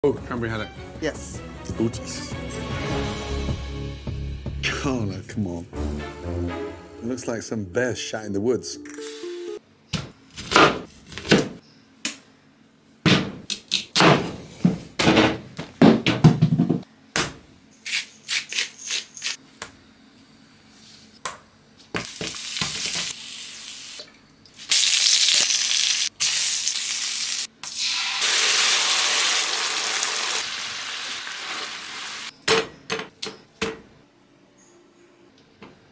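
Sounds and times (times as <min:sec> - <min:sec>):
food sizzling in a frying pan: 0:24.7 - 0:32.3.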